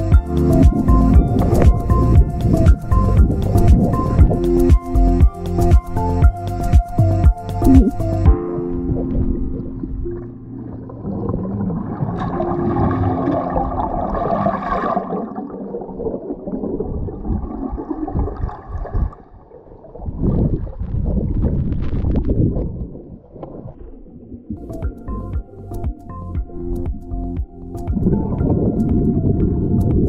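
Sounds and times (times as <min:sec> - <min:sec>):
bubbles gurgling: 0:08.9 - 0:24.7.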